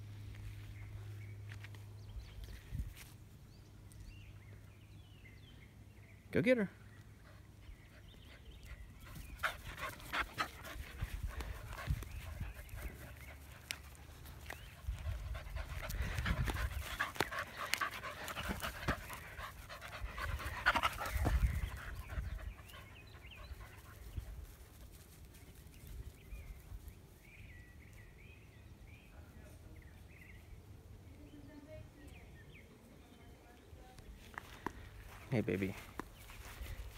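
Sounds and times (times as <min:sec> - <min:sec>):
dog panting: 0:07.2 - 0:24.1.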